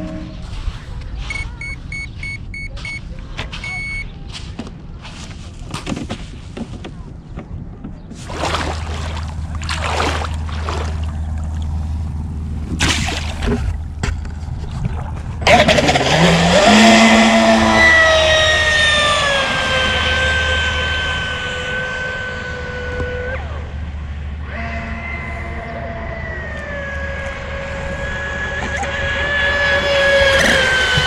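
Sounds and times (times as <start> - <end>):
rc boat motor whining: 15.3 - 31.0.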